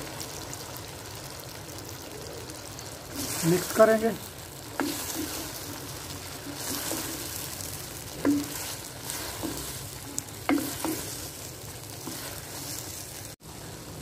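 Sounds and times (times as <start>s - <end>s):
frying sizzle: 0.0s - 14.0s
wooden spoon scraping a clay pot: 3.1s - 3.8s, 4.6s - 13.3s.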